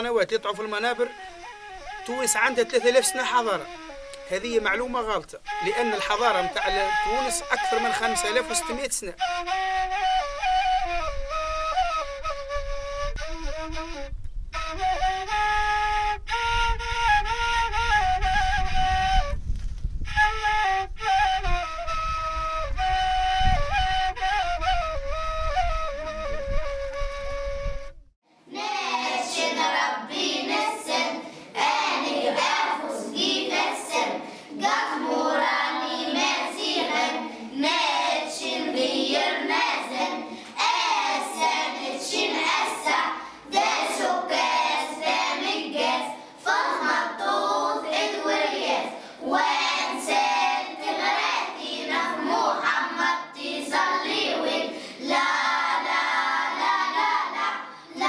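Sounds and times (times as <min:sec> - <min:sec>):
children singing: 0:28.5 - 0:58.0.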